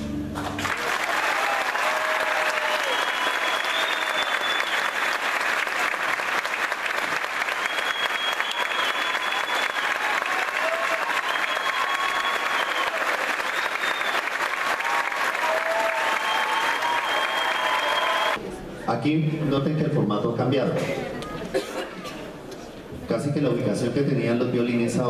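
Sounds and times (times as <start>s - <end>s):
audience applauding: 0.3s - 18.4s.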